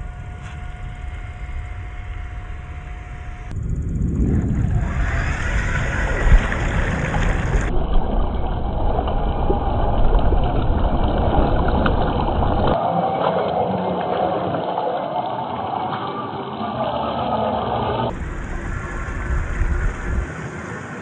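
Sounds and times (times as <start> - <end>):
mud and water splashing: 4.2 - 17.4, 18.1 - 21.0.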